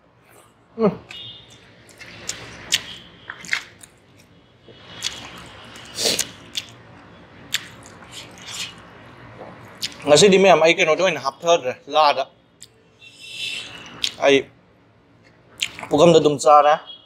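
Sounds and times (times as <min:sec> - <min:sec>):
chewing and mouth smacks: 0:01.1 - 0:10.1, 0:15.2 - 0:16.0
sharp wet clicks: 0:04.9 - 0:06.8, 0:07.5 - 0:08.8, 0:15.2 - 0:16.0
fingers squishing food: 0:07.5 - 0:08.9.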